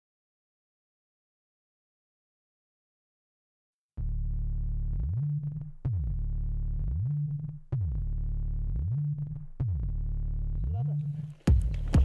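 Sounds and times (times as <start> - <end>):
sweeping synthesizer bass line: 4.0 - 11.3.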